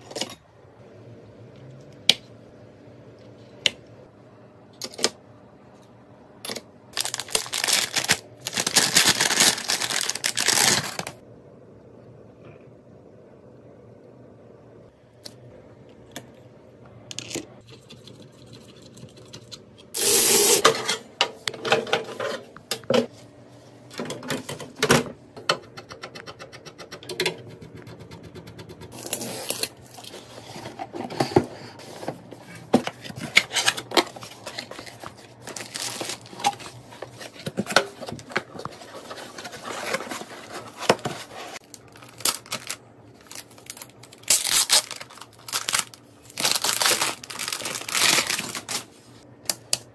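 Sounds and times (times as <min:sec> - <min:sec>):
blade scraping shrink-wrap: 0:43.6 - 0:48.8.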